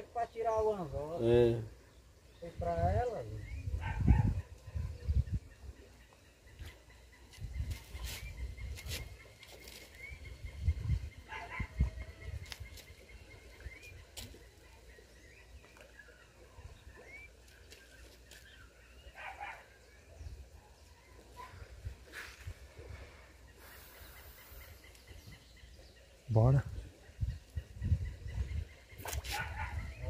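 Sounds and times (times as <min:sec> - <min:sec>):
wind rumbling on microphone: 0:02.3 - 0:14.4, 0:24.6 - 0:30.0.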